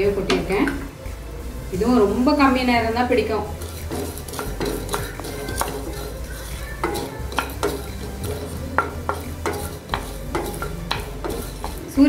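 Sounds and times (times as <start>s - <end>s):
spatula scraping pan: 1.9s - 12.0s
seeds clicking and tapping: 3.7s - 12.0s.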